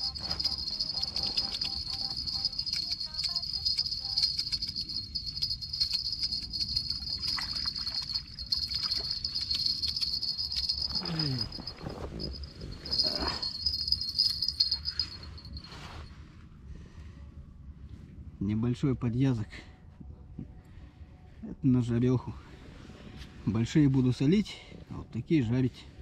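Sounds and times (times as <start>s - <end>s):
fishing reel whirring: 0.0s - 15.3s.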